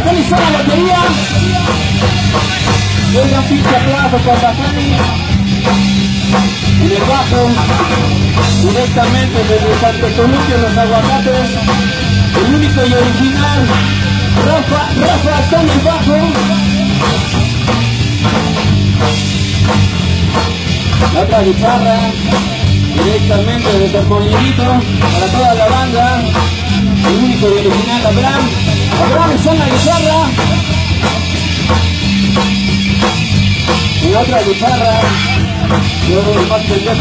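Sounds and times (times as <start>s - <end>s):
man singing: 0.0s - 5.5s, 6.7s - 17.2s, 21.0s - 31.2s, 34.0s - 37.0s
bass guitar: 0.0s - 37.0s
drum kit beat: 0.0s - 37.0s
electric guitars: 0.0s - 37.0s.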